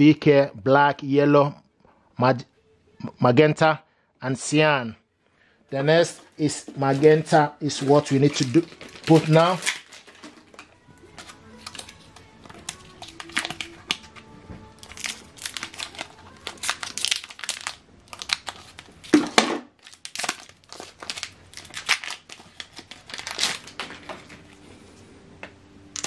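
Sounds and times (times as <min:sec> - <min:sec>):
plastic packaging crinkling and tearing: 0:06.1 - 0:24.6.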